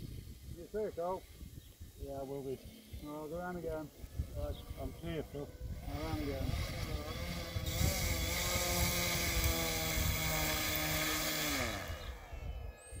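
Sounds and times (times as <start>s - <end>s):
electric motor and propeller whine: 3.2s - 13.0s.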